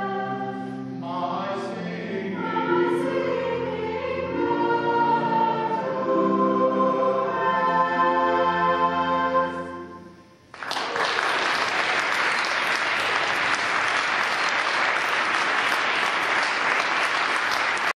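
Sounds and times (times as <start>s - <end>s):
choir holding chord: 0.0s - 10.4s
audience applause: 10.5s - 18.0s.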